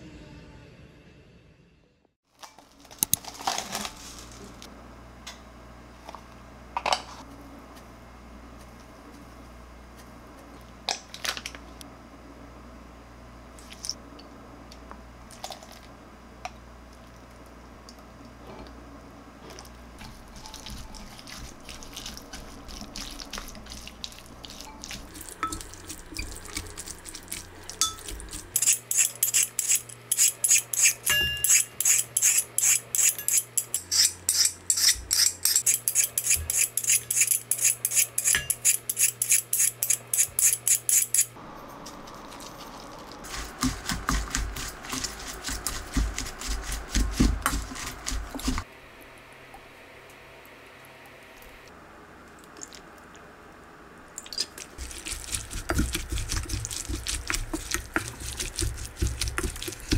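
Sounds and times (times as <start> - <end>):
spoon stirring in glass bowl: 20.0 - 41.2, 42.1 - 48.6, 54.4 - 59.9
peeler scraping carrot: 20.0 - 41.4, 43.3 - 48.6, 54.8 - 59.9.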